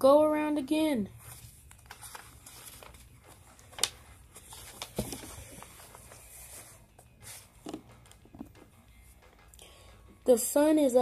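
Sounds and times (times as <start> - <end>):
book pages turning: 1.2 - 9.2.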